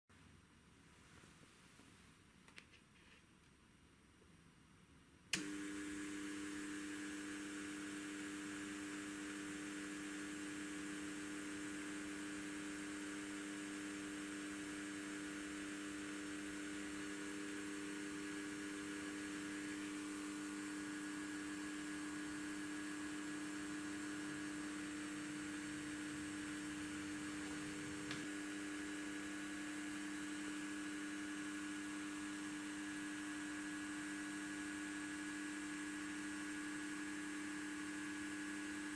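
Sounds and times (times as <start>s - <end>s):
small click: 2.5s - 3.6s, 5.3s - 5.5s
rotary tool motor whine: 5.4s - 38.9s.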